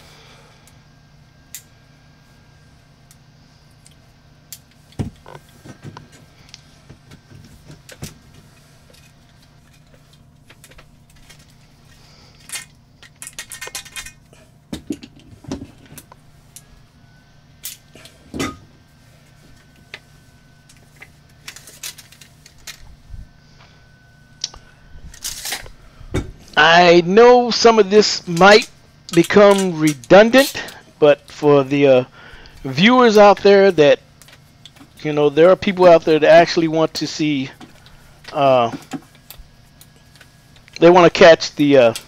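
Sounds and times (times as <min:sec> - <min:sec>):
low steady hum: 0:00.0 - 0:42.0
metal pipe pieces clicking and rattling: 0:12.3 - 0:14.3, 0:28.4 - 0:30.8.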